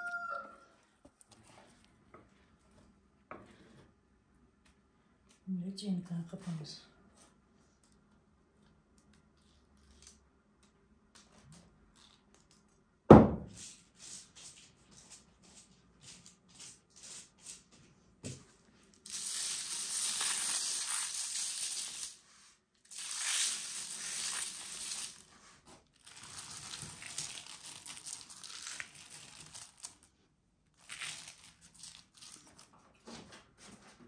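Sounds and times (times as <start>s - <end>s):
knock on metal tray: 13.1s - 13.5s
grains sprinkled on pastry: 19.0s - 32.7s.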